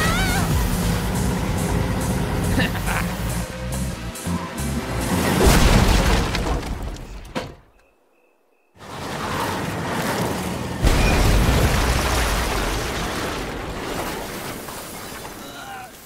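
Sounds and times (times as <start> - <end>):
car rumbling: 0.0 - 7.4
car crashing through wooden fence: 5.2 - 7.6.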